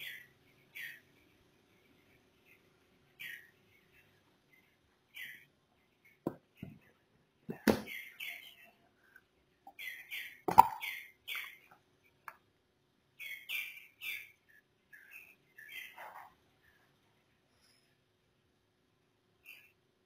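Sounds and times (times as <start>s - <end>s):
bird chirping: 13.2s - 16.3s.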